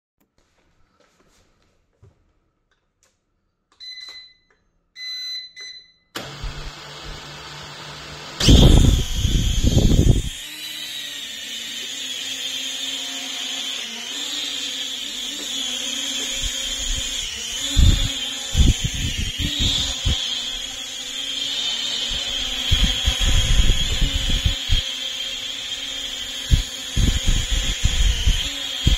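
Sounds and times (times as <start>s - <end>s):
drone propeller whine: 8.4s - 28.9s.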